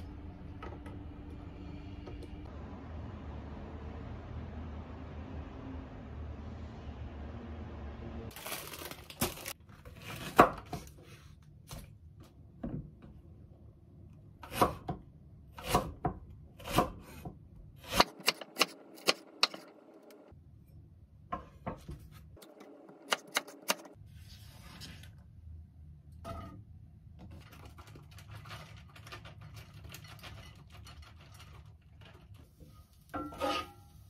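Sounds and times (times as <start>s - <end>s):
knife chopping on wooden board: 15.6s - 19.7s.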